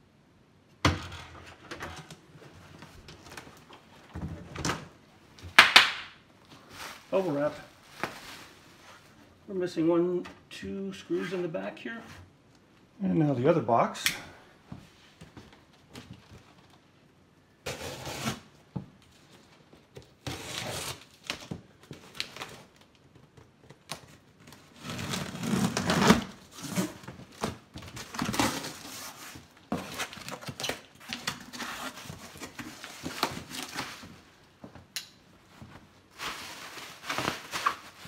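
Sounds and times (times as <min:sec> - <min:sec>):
tape ripping off cardboard: 0:17.6 - 0:18.5, 0:20.0 - 0:22.7, 0:23.8 - 0:34.0
knife slitting packing tape: 0:20.2 - 0:21.2.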